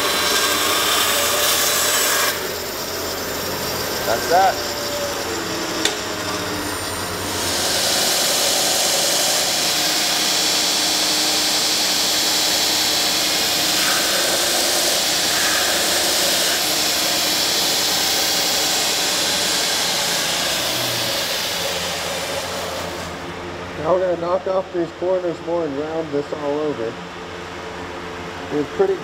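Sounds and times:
belt grinder sanding wood: 0:00.0 - 0:23.2.

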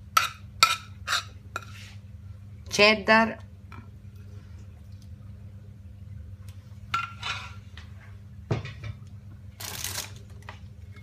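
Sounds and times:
metal spoon scraping frying pan: 0:00.2 - 0:01.9.

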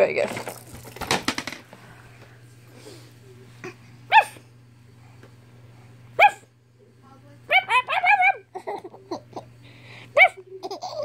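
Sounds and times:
dog yipping bark: 0:04.1 - 0:04.4, 0:06.2 - 0:06.5, 0:07.5 - 0:08.5, 0:10.2 - 0:10.4.

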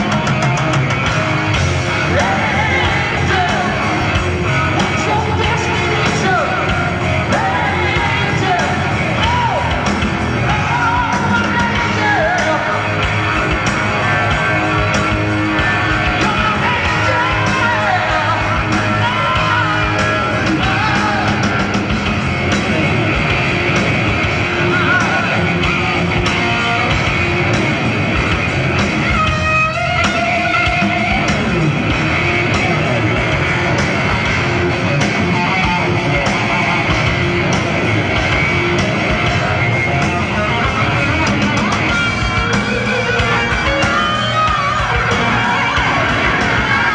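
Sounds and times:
heavy metal band playing live: 0:00.0 - 0:46.9
lead electric guitar: 0:00.0 - 0:46.9
sung vocals: 0:01.7 - 0:21.9, 0:24.4 - 0:26.6, 0:41.9 - 0:46.9.

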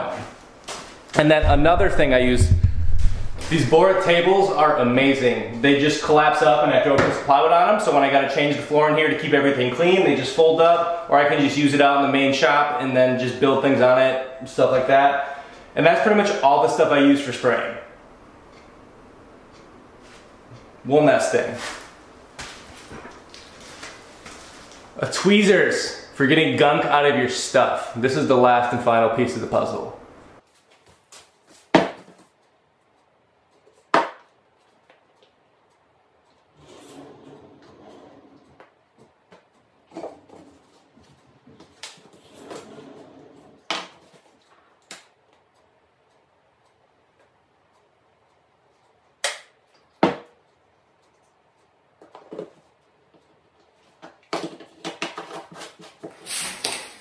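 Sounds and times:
sharp knocks: 0:01.4 - 0:04.1.

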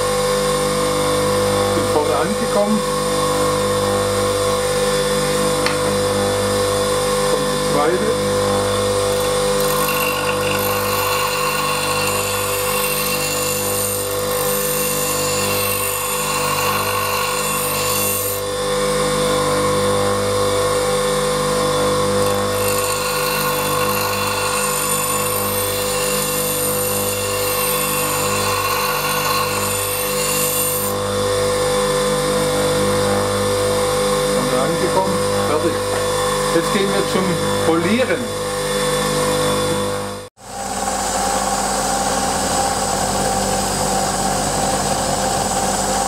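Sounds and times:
bench grinder motor hum: 0:00.0 - 0:46.0
steel grinding on stone: 0:09.1 - 0:18.5, 0:22.2 - 0:31.0.

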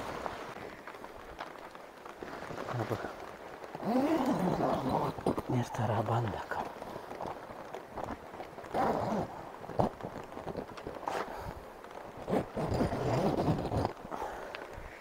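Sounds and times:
fabric rustling and flapping: 0:00.0 - 0:15.0
tent door zipper: 0:03.8 - 0:05.4, 0:08.6 - 0:14.0.

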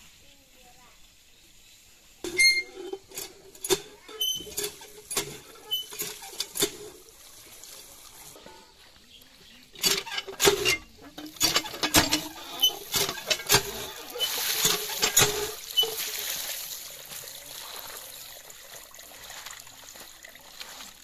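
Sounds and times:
hand pump handle squeaking and clanking: 0:02.2 - 0:07.1, 0:09.7 - 0:16.3
water splashing onto leaves: 0:09.8 - 0:21.0.

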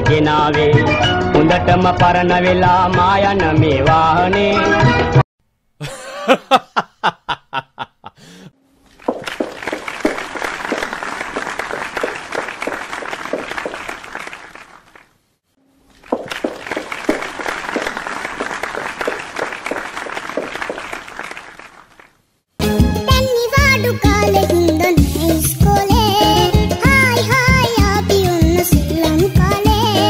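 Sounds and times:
crowd applause: 0:09.2 - 0:15.0, 0:16.2 - 0:22.1.

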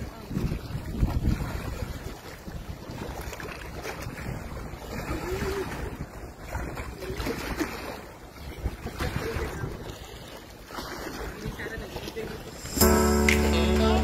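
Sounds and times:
wind buffeting microphone: 0:00.0 - 0:07.0
waves lapping against seawall: 0:00.0 - 0:14.0.

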